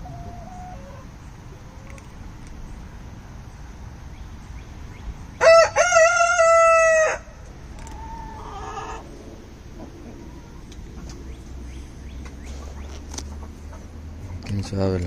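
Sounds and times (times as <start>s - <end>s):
rooster crowing: 5.4s - 7.4s.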